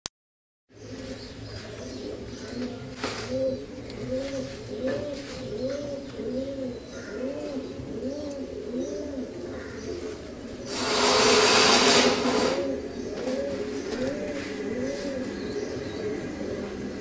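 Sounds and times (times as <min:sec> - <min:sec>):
pigeons cooing: 0:00.7 - 0:17.0
loud rushing noise: 0:10.6 - 0:12.9.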